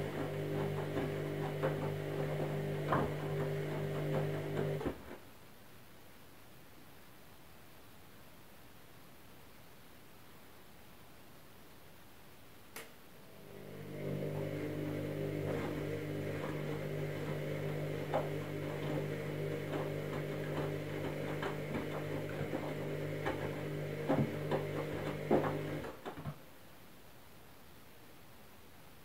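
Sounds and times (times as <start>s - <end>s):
laundry sloshing and knocking in drum: 0.0s - 5.2s, 13.6s - 26.4s
washing machine motor hum: 0.0s - 5.2s, 13.3s - 26.2s.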